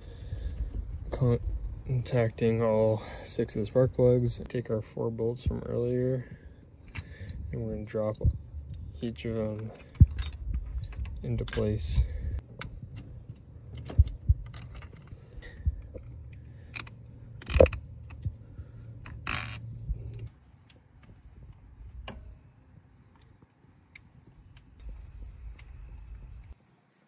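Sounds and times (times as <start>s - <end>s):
metallic clinks of small bolts: 6.8s - 21.1s
ratchet wrench clicking: 16.1s - 18.3s.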